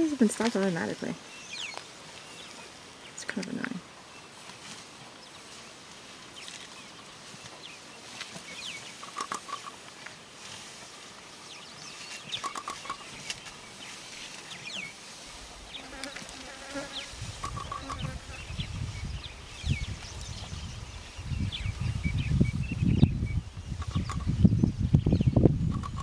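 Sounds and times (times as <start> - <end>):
open-air ambience hiss: 0.0 - 26.0
insects buzzing: 12.3 - 18.6.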